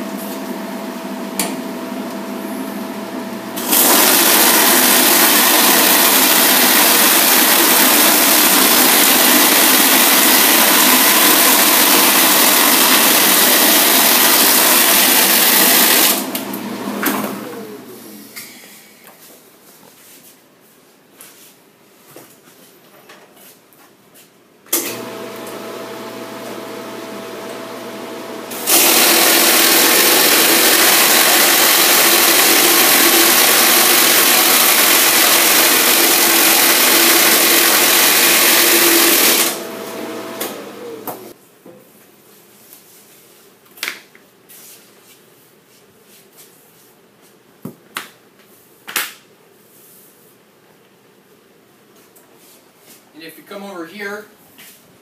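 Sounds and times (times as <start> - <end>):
electric motor humming: 24.9 - 41.3
rubber tread being cut: 28.5 - 39.6.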